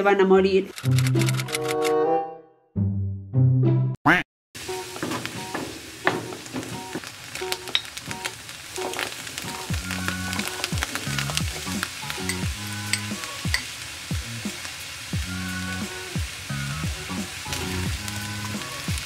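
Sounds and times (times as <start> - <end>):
food sizzling in a frying pan: 4.6 - 19.0
wooden spatula scraping a pan: 4.8 - 8.0.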